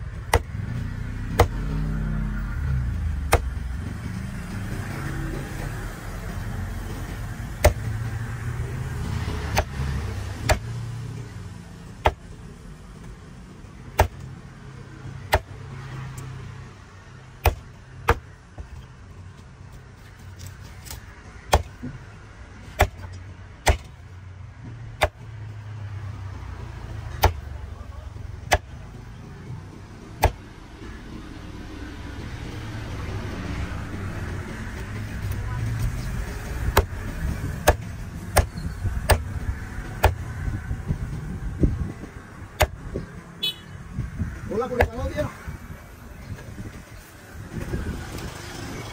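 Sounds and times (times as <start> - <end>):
cleaver chopping on wooden block: 0.3 - 1.7, 3.2 - 3.6, 7.6 - 8.0, 9.4 - 10.8, 12.0 - 12.3, 13.9 - 14.2, 15.3 - 15.6, 17.4 - 18.7, 20.8 - 22.0, 22.7 - 24.0, 25.0 - 25.2, 27.1 - 27.5, 28.4 - 28.7, 30.2 - 30.4, 36.6 - 39.3, 40.0 - 40.2, 42.6 - 43.0.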